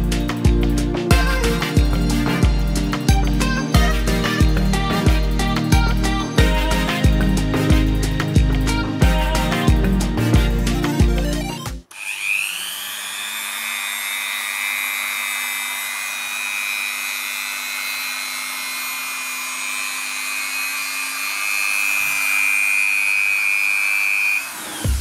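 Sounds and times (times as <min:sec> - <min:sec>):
rotary tool whining: 0:11.4 - 0:25.0.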